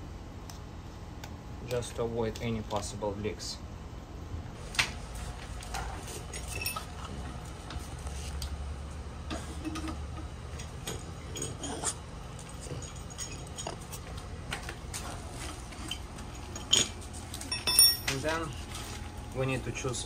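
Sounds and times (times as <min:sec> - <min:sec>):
metal hose fittings clinking: 0:06.4 - 0:06.9, 0:15.7 - 0:18.5.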